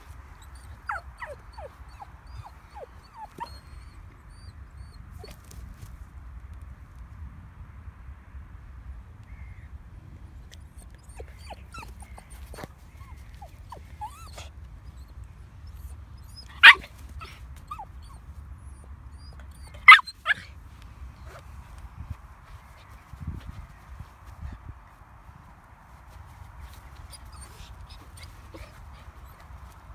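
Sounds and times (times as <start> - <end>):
puppy whining: 0.4 - 5.4, 10.7 - 20.5, 26.6 - 29.9
puppy yapping barks: 16.4 - 18.2, 19.2 - 20.5.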